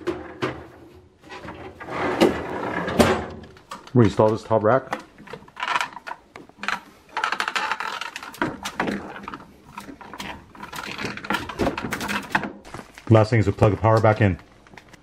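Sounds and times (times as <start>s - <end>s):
wire basket rattling on plastic rails: 3.9s - 12.5s.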